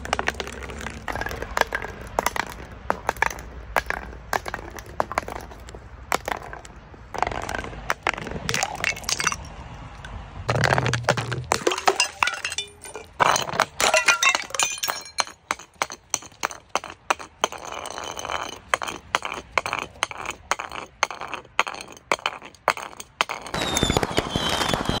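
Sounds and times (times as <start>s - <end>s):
glass jars clattering down steps: 7.2s - 9.5s, 10.5s - 23.6s
glass breaking: 8.5s - 9.5s, 10.5s - 16.6s.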